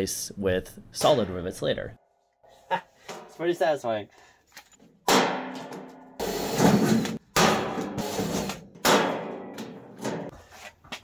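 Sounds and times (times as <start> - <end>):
sharp metal bangs: 5.0 - 8.1, 8.7 - 10.3
metal sheet clanging: 5.1 - 10.3.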